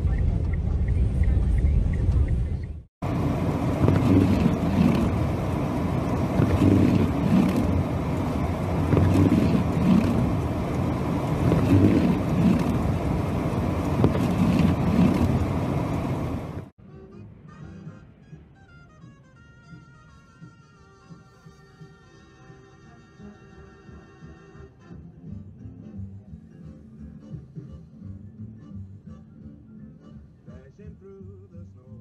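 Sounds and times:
wind gusting against car: 0.0 - 16.7
car engine and road rumble: 0.0 - 16.8.

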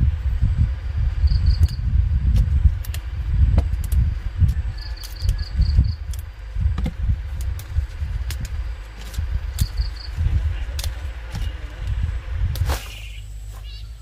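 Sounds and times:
uneven low rumble: 0.0 - 14.0
insect chirping: 0.4 - 2.2, 3.9 - 6.6, 7.2 - 14.0
scattered clicks: 1.5 - 6.3.

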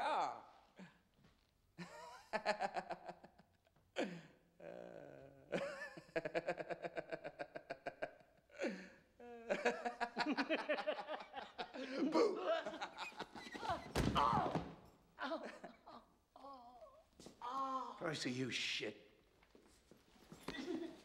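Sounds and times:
men laughing: 5.5 - 13.8.

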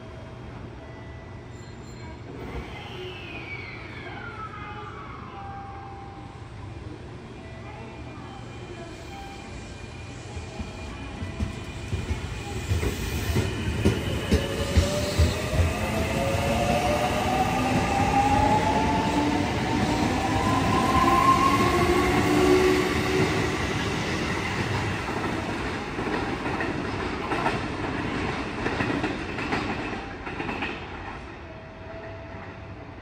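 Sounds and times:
train wheels clattering over rails: 10.6 - 18.5.

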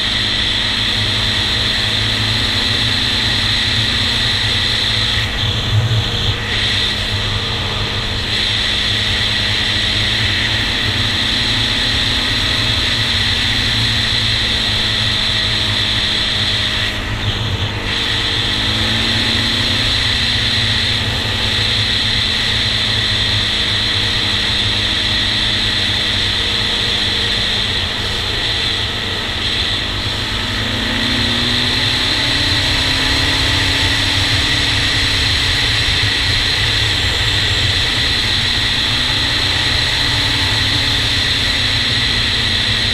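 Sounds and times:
quad engine running: 0.0 - 42.9
wind rushing over microphone: 0.0 - 42.9.

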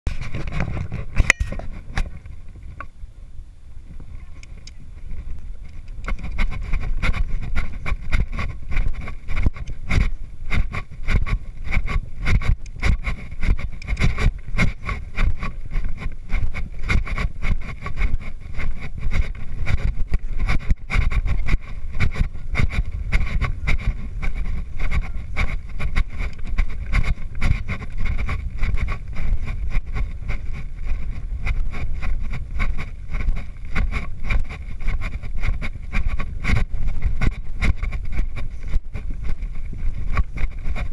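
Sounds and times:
wind buffeting microphone: 0.1 - 40.9
horse cantering on sand: 3.9 - 40.9.

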